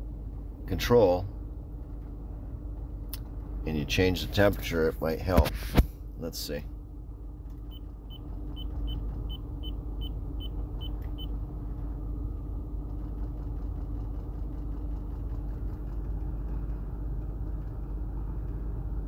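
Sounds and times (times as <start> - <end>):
climate system hum: 0.0 - 19.0
faint rapid clicking: 12.8 - 18.6.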